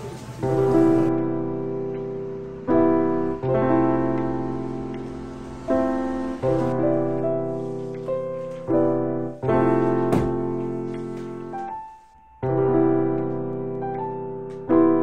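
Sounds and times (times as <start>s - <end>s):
piano chords: 0.0s - 15.0s.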